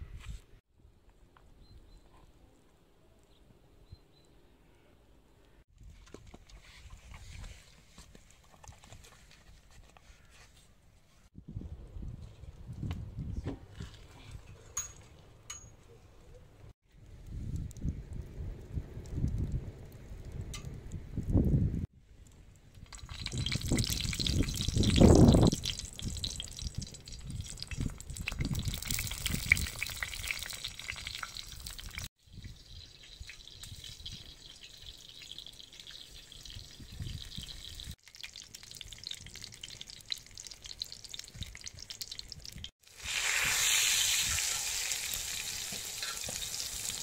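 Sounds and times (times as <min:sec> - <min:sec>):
eggplant sizzling in pan: 0:28.3 - 0:47.0.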